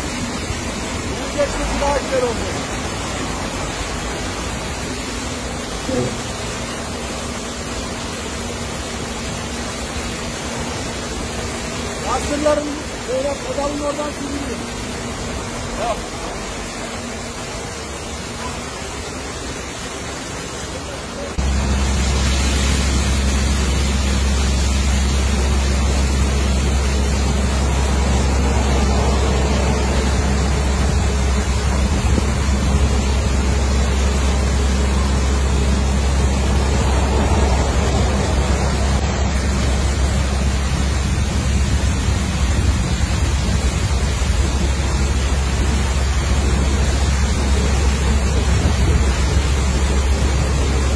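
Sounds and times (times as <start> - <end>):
water jets spraying against truck: 0.0 - 50.9
loud low rumble: 21.4 - 50.9.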